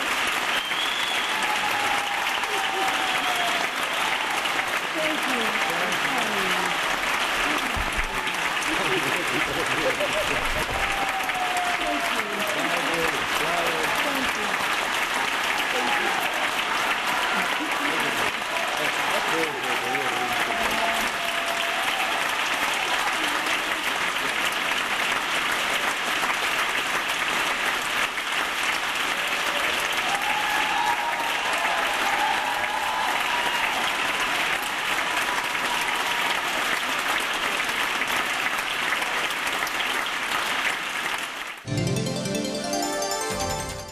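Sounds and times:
crowd applauding: 0:00.0 - 0:43.9
music: 0:41.7 - 0:43.9.

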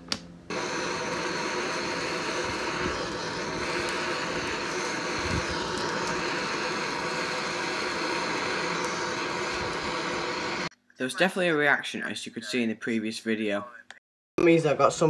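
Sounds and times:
blowtorch hissing: 0:00.5 - 0:10.7.

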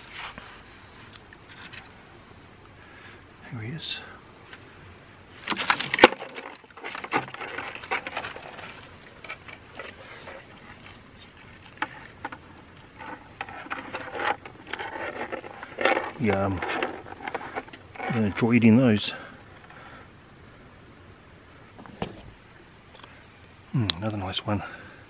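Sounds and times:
crayfish clicking and rustling: 0:05.4 - 0:18.6.

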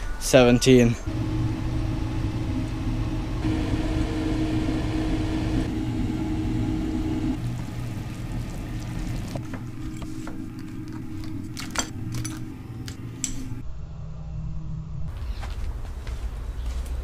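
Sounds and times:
appliance fan hum: 0:01.1 - 0:13.6.

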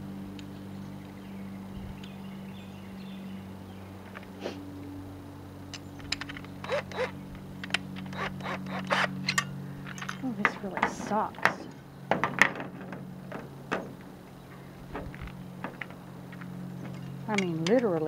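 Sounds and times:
low hum: 0:00.0 - 0:18.0
hand tools clicking and scraping: 0:05.7 - 0:18.0.

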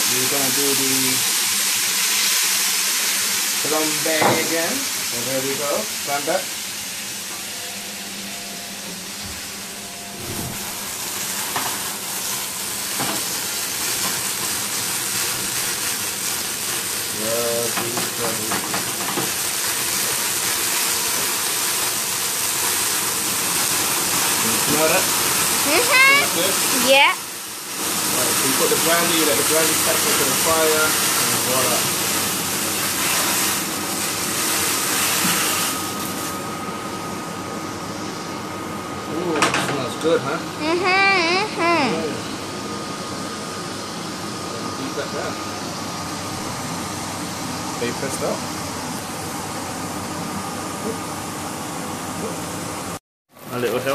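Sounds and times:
chicken sizzling in a pan: 0:00.0 - 0:09.7, 0:10.5 - 0:36.4, 0:53.3 - 0:53.9
flambe flames hissing: 0:09.0 - 0:36.4.

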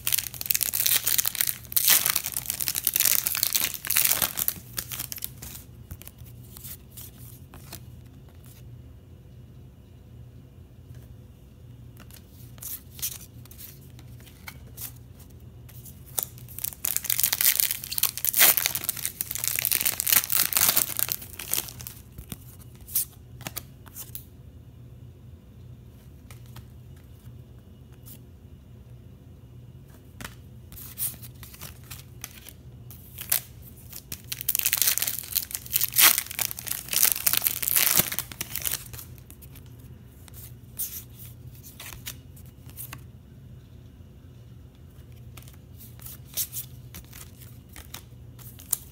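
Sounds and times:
foil wrappers tearing and crinkling: 0:00.0 - 0:06.1, 0:16.1 - 0:22.0, 0:31.0 - 0:39.5.

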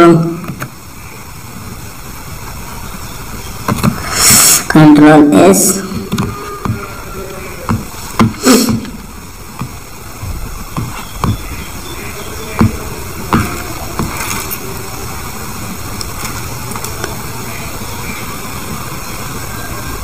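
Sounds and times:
desk knocks: 0:05.9 - 0:06.8, 0:07.7 - 0:09.0, 0:10.7 - 0:11.6, 0:12.5 - 0:14.2.

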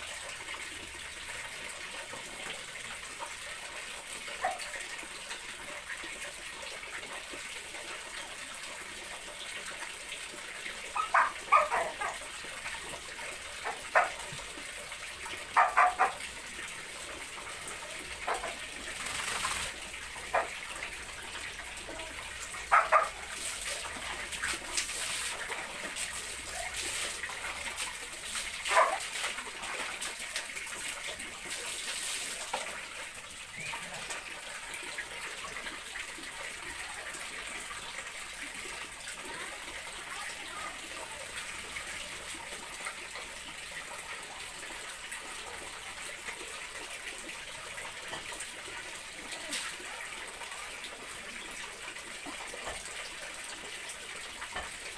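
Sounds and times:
small dogs barking and yipping: 0:10.9 - 0:12.3, 0:13.6 - 0:14.3, 0:15.5 - 0:16.2, 0:20.3 - 0:20.6, 0:22.6 - 0:23.4, 0:28.7 - 0:29.1
water splashing: 0:17.6 - 0:32.8.

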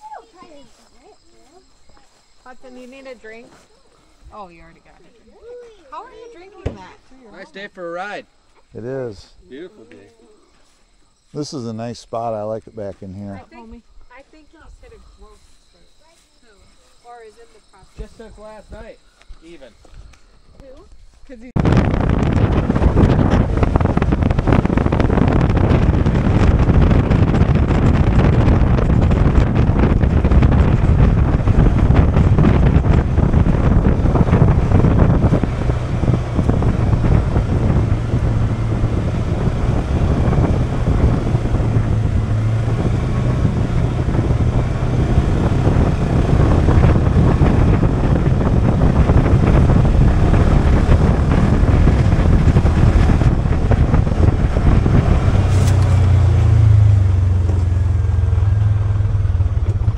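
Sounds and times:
wind buffeting microphone: 0:11.5 - 0:59.9
engine running: 0:21.6 - 0:59.9.

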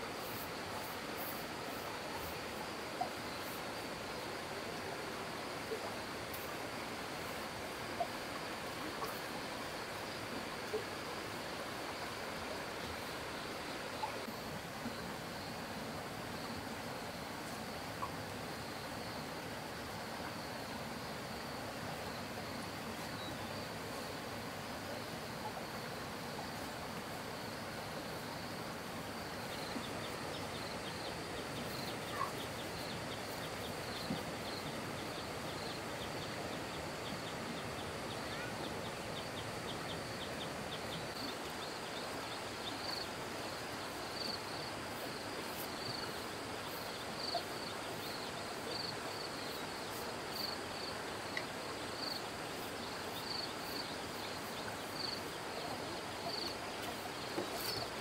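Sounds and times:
insects chirping: 0:00.0 - 0:58.0
outdoor background hiss: 0:00.0 - 0:58.0.

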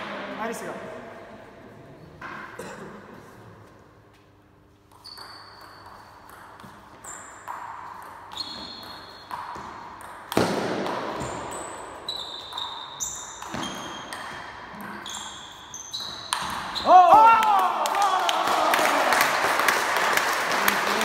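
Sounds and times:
table tennis ball hits: 0:04.9 - 0:15.3, 0:16.0 - 0:16.8.

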